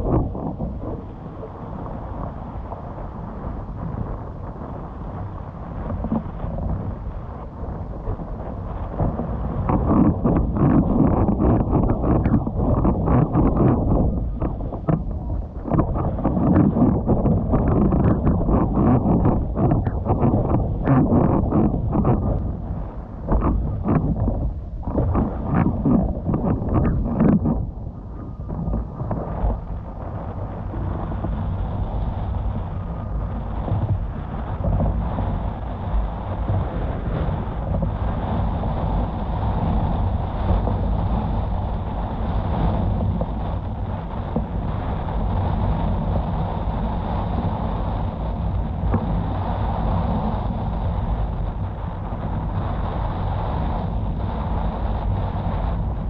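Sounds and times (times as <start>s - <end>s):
wind rumble on microphone: 0.0s - 56.0s
rushing water: 7.9s - 31.4s.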